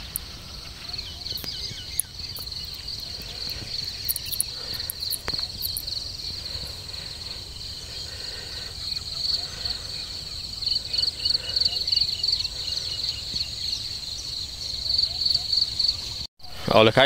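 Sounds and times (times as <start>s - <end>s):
insects trilling: 0.0s - 16.9s
faint ticks: 1.4s - 7.1s.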